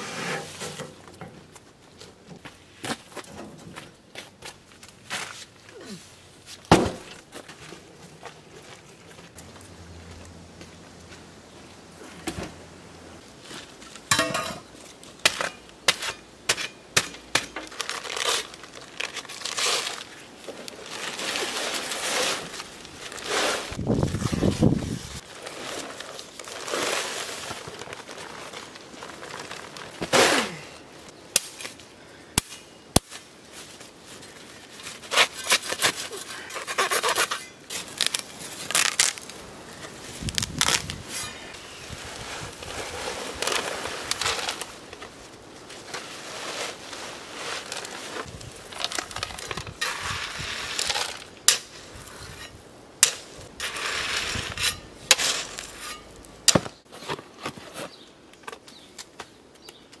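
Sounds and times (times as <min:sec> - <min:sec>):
sack rustling: 0:20.8 - 0:30.6, 0:37.8 - 0:51.2
sand pouring into wheelbarrow: 0:20.9 - 0:27.8, 0:41.7 - 0:44.8, 0:49.2 - 0:51.3, 0:53.6 - 0:55.9.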